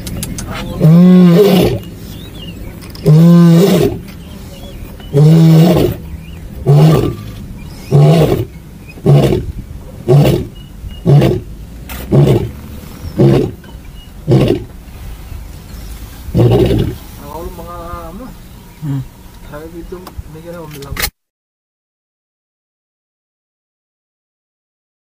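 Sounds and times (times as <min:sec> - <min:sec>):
lion roaring: 0:00.8 - 0:01.8, 0:03.0 - 0:04.0, 0:05.1 - 0:06.0, 0:06.6 - 0:12.6, 0:13.2 - 0:13.6, 0:14.2 - 0:14.7, 0:16.3 - 0:17.0.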